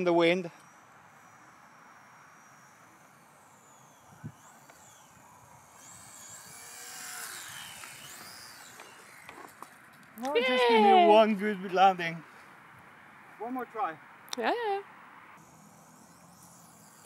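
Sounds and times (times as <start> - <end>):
wind hiss: 0.0 - 9.6
model plane motor whining: 0.0 - 11.0, 15.4 - 17.0.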